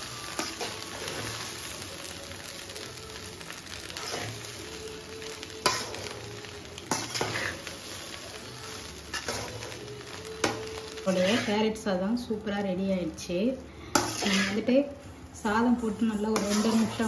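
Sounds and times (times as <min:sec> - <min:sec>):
frying sizzle: 0:00.0 - 0:17.0
spatula scraping rice in pan: 0:03.8 - 0:04.4, 0:06.9 - 0:11.7, 0:13.9 - 0:14.7, 0:16.3 - 0:17.0.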